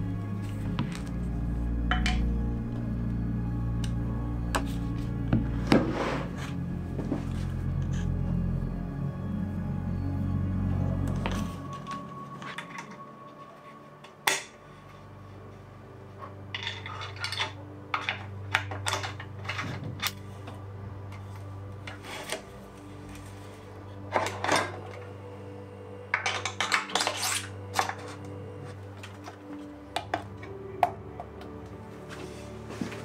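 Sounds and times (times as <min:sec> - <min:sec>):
low musical drone: 0:00.0 - 0:33.0
metal tools clinking: 0:16.5 - 0:20.2.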